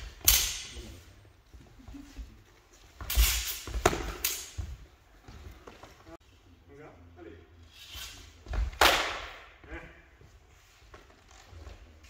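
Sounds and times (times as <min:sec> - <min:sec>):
sword blades clashing: 0:00.0 - 0:00.8.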